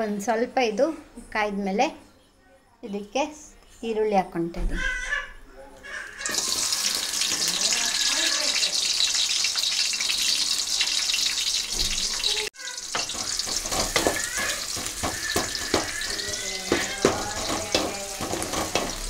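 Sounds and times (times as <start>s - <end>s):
onions sizzling in hot oil: 6.2s - 19.0s
wooden spatula scraping metal pan: 13.0s - 19.0s.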